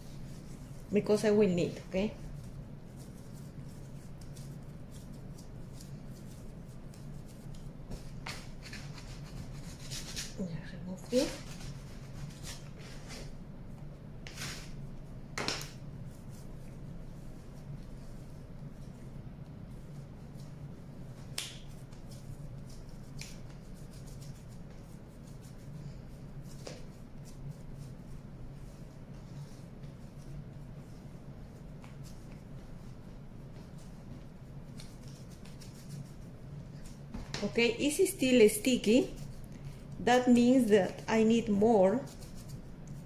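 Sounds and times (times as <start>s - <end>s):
hands kneading squelching clay: 0.0s - 10.4s, 15.7s - 43.0s
steady low hum: 0.0s - 43.0s
wet smacks of dough and palms: 21.2s - 23.8s.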